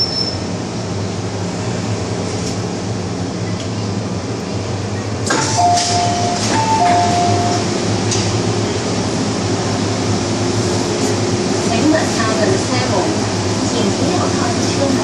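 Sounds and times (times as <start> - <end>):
train low hum: 0.0 - 15.0
two-note door chime: 5.5 - 7.6.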